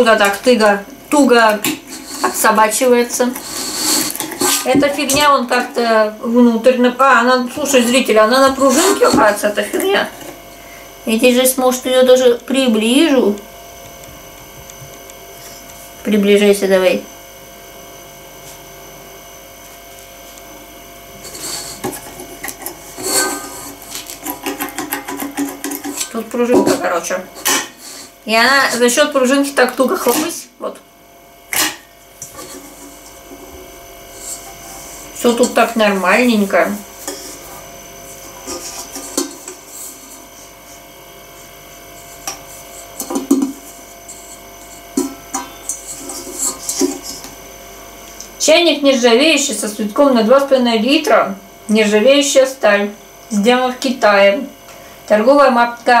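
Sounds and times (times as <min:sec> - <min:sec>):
room hum: 0:00.0 - 0:56.0.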